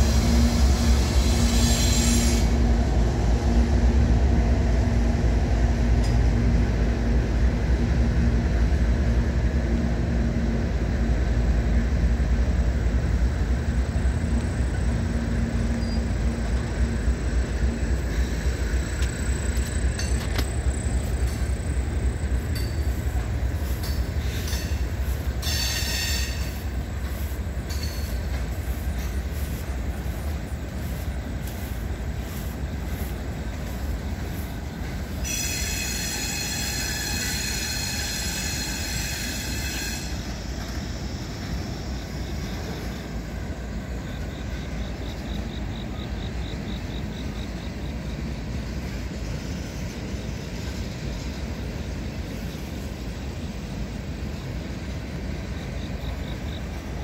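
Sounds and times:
train wheels squealing: 0:00.0 - 0:02.7, 0:14.5 - 0:57.0
freight train rumbling: 0:00.0 - 0:57.0.

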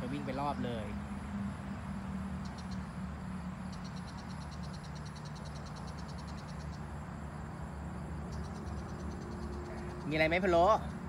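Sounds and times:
insect trilling: 0:00.0 - 0:11.0.

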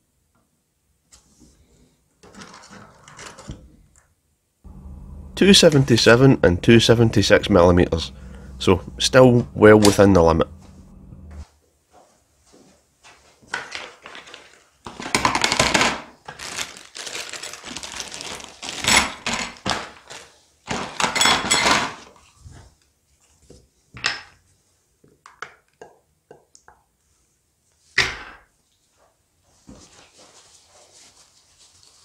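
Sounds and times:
plastic bags crinkling: 0:13.8 - 0:21.0
metal parts clinking in plastic tub: 0:21.0 - 0:22.0.

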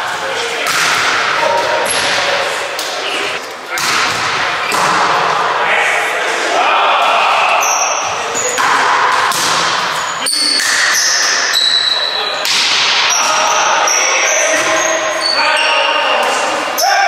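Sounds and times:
voices and calls in hall: 0:00.0 - 0:17.0
volleyball hit: 0:00.6 - 0:02.2, 0:03.7 - 0:05.2, 0:08.5 - 0:11.1, 0:12.4 - 0:13.4
shoe squeaks: 0:10.0 - 0:12.4, 0:13.1 - 0:16.2.

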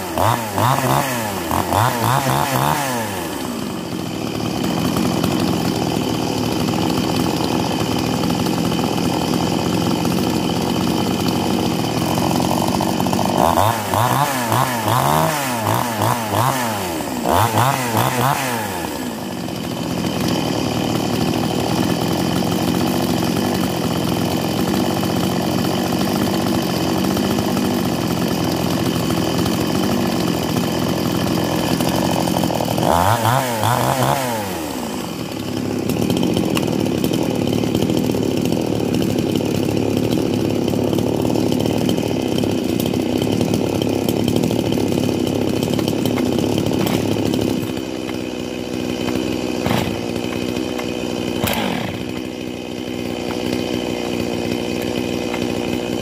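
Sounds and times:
chainsaws idling and revving: 0:00.0 - 0:56.0.

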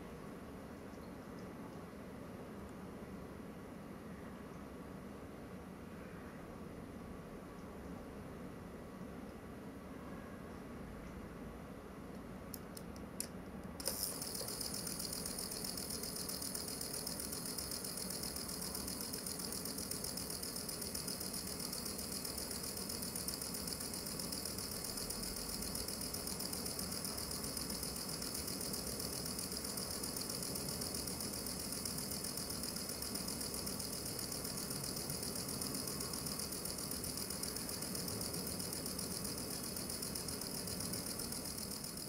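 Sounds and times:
toy motor whirring buzz: 0:13.8 - 0:42.0.

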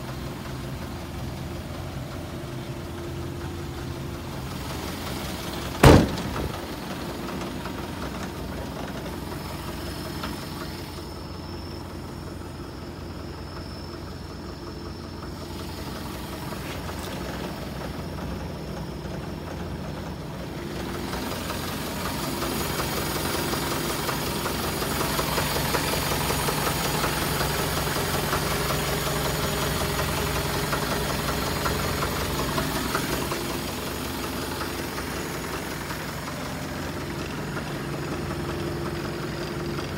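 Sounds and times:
truck engine idling: 0:00.0 - 0:39.9
loud thump: 0:05.8 - 0:06.8.

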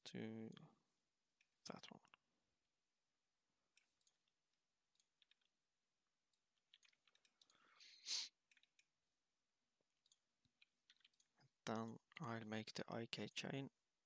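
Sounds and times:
computer mouse clicks: 0:06.6 - 0:07.7, 0:10.0 - 0:12.3
short hiss: 0:08.0 - 0:08.3.

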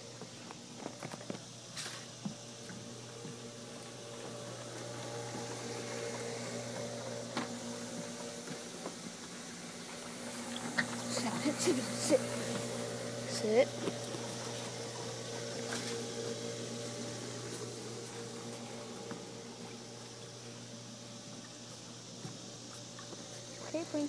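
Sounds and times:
steady low hum: 0:00.0 - 0:24.0
pool water lapping and gurgling: 0:00.3 - 0:23.9.

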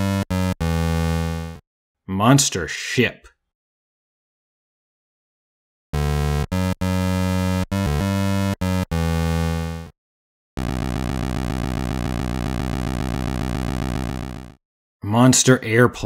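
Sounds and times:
buzzy electronic notes: 0:00.0 - 0:01.6, 0:10.6 - 0:14.6
pulsing buzzing drone: 0:10.6 - 0:14.6.

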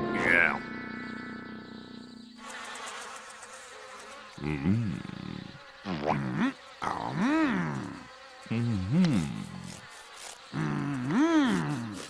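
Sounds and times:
cartoon insect buzzing: 0:02.4 - 0:12.0
character hummed grunts: 0:04.4 - 0:09.8, 0:10.5 - 0:12.0.

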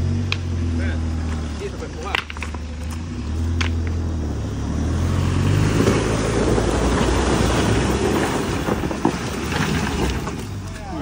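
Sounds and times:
truck engine under load: 0:00.0 - 0:11.0
tyres crunching over mud and stones: 0:05.2 - 0:11.0.

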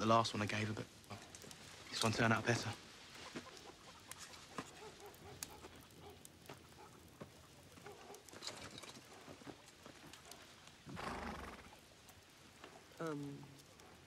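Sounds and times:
rustle: 0:00.0 - 0:14.0
hens clucking: 0:03.1 - 0:04.6.

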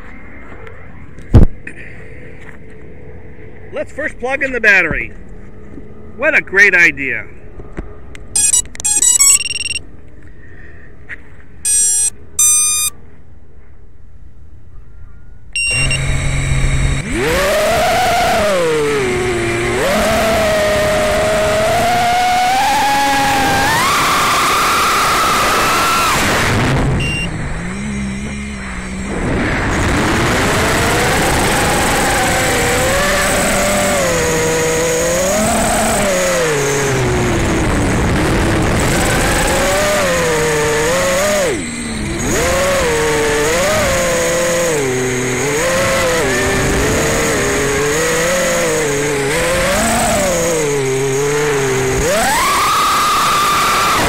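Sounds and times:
quadcopter motors whining: 0:08.4 - 0:09.8, 0:11.7 - 0:12.9, 0:15.6 - 0:54.0.

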